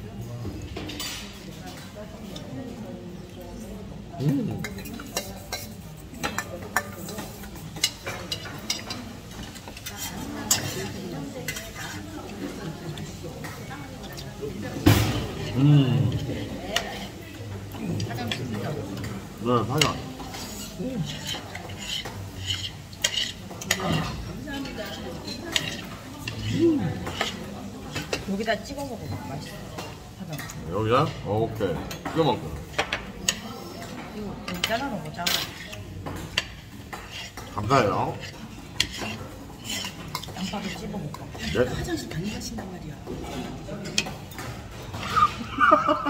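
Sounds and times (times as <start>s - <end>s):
murmured vocal sounds: 15.5s - 16.2s.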